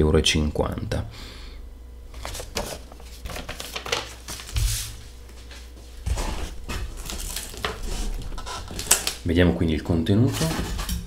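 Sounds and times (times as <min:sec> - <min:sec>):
cardboard scraping and rustling: 0:02.2 - 0:09.2.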